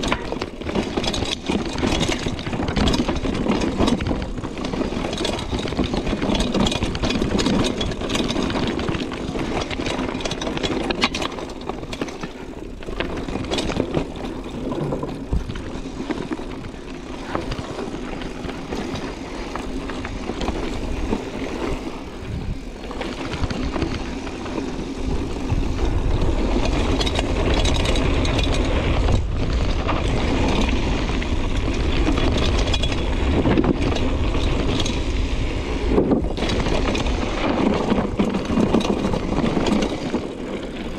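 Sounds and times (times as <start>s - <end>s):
bike rattling over bumps: 0.0s - 40.9s
wind buffeting microphone: 11.6s - 40.9s.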